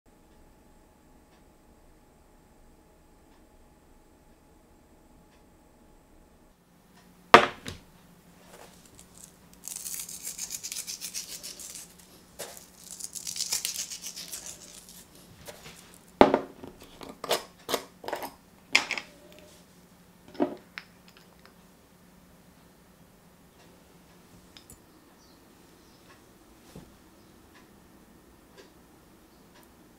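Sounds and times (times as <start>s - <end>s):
salt flakes crackling: 8.6s - 16.2s.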